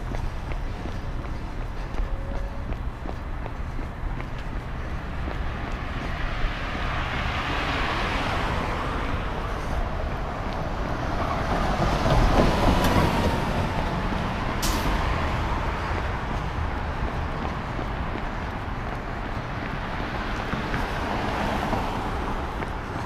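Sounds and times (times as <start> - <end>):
bus passing: 0.0 - 23.0
street traffic: 0.0 - 23.0.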